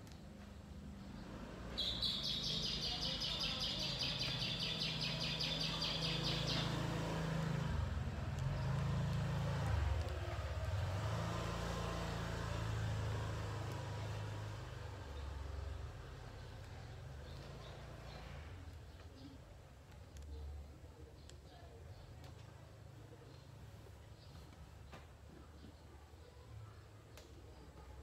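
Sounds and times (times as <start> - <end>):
high-pitched chirping: 1.8 - 6.8.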